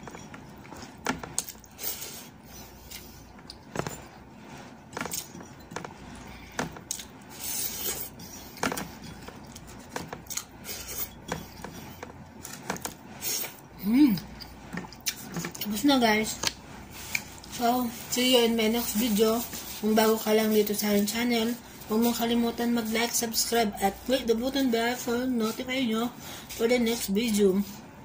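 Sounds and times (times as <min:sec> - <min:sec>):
person chewing with lip smacks: 0:09.3 - 0:10.6.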